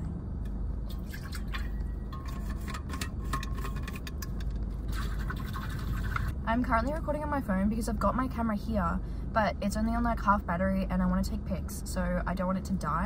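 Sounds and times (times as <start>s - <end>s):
water sloshing in a bottle: 0.9s - 6.3s.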